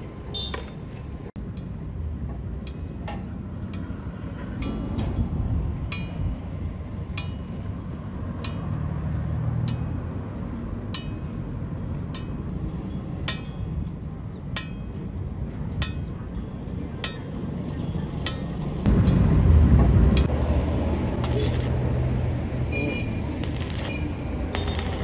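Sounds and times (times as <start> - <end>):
steady low rumble: 18.8 - 22.6
metal clinks ringing: 24.6 - 25.0.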